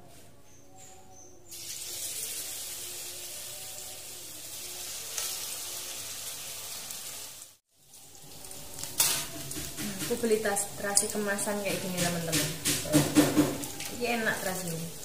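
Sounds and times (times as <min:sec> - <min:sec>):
batter sizzling in hot oil: 0:01.5 - 0:12.3.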